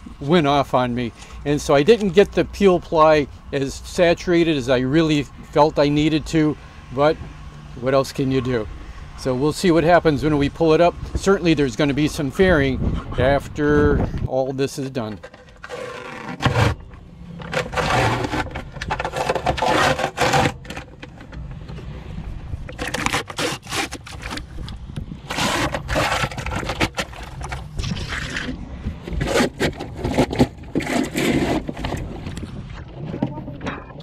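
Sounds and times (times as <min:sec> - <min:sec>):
peel ply tearing off fiberglass: 0:15.2 - 0:21.4, 0:22.7 - 0:32.1.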